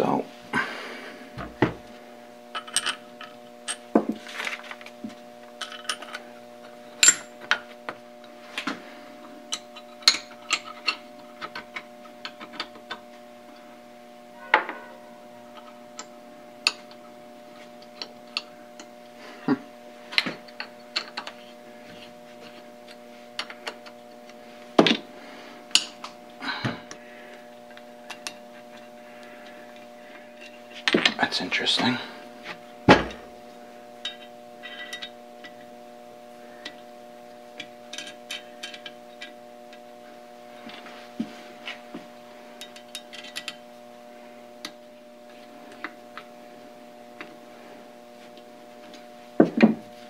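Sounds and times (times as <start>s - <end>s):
low hum: 0.0s - 50.0s
metal parts clicking and clinking: 2.5s - 3.0s, 5.6s - 6.2s, 9.5s - 13.0s, 34.0s - 35.6s, 37.9s - 39.3s, 42.6s - 43.6s.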